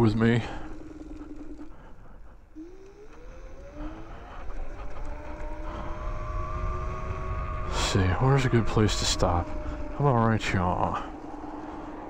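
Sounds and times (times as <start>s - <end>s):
electric scooter motor whining: 0.0s - 12.0s
road and wind rumble: 2.6s - 12.0s.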